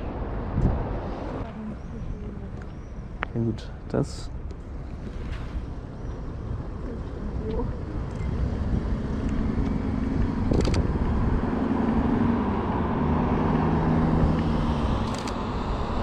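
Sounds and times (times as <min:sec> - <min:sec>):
car engine passing: 0:05.0 - 0:16.0
camera shutter clicks: 0:10.5 - 0:10.8, 0:15.0 - 0:15.4.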